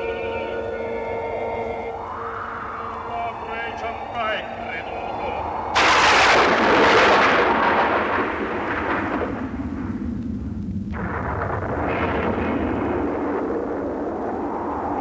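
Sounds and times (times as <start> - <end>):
steady low noise: 0.0 - 15.0
loud crash: 5.7 - 10.1, 10.8 - 14.8.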